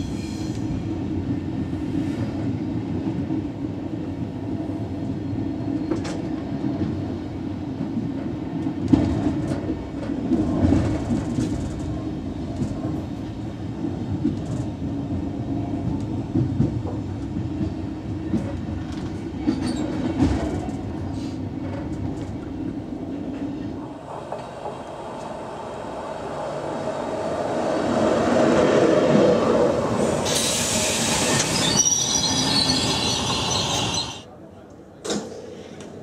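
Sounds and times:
train rumbling over rail joints: 0:00.0 - 0:34.3
passing train: 0:00.0 - 0:36.0
hiss burst: 0:30.2 - 0:31.7
high-pitched wheel squeal: 0:30.3 - 0:34.2.

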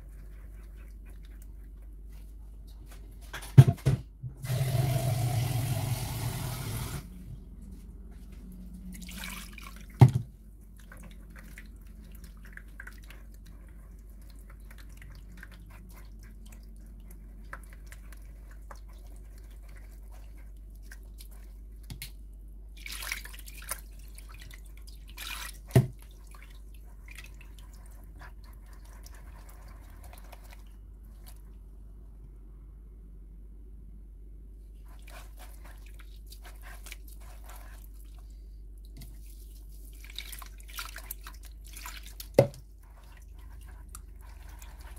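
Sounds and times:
wet squelching through cloth: 0:08.8 - 0:10.0, 0:10.6 - 0:22.2, 0:22.8 - 0:31.4, 0:34.8 - 0:44.9.

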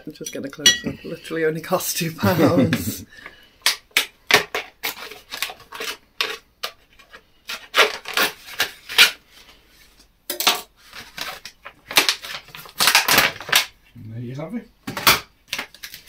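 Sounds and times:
knife cutting plastic packaging: 0:03.6 - 0:09.2, 0:10.8 - 0:13.7, 0:15.0 - 0:16.0.

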